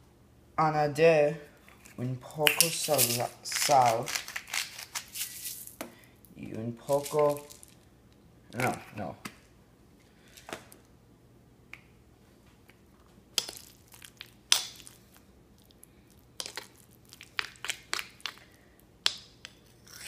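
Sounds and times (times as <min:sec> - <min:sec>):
spoon scraping stone bowl: 0:02.5 - 0:05.7.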